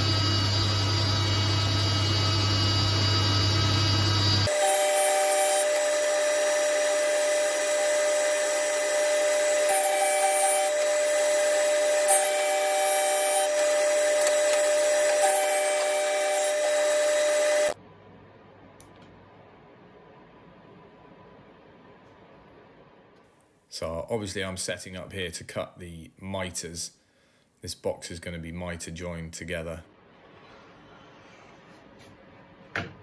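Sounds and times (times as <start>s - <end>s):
thickness planer running: 0.0s - 17.8s.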